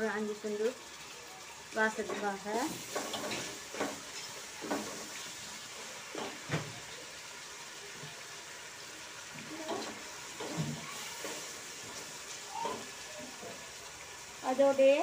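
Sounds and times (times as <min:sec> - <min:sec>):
vegetables frying with hiss: 0:00.0 - 0:15.0.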